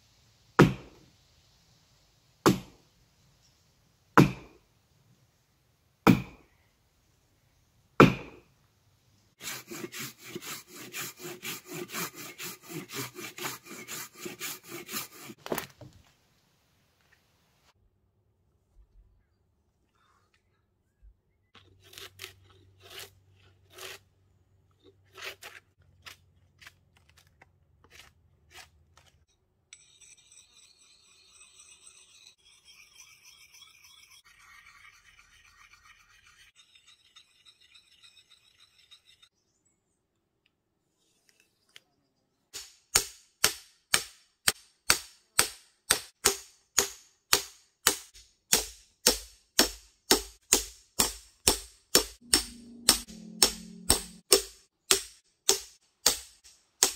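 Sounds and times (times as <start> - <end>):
axe striking log: 0.6 - 1.0, 2.4 - 2.8, 4.2 - 4.6, 6.0 - 6.4, 8.0 - 8.4, 42.6 - 56.9.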